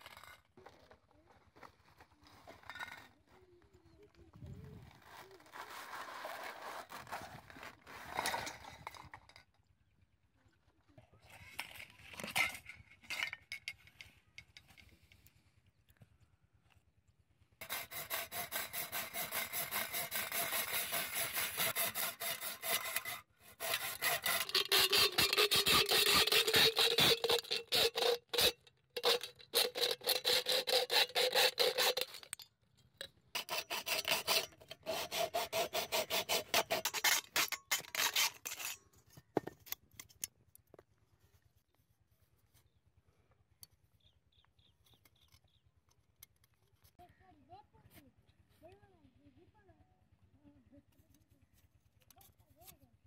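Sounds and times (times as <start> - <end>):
hacksaw cutting metal can: 17.6 - 32.4, 33.4 - 40.3.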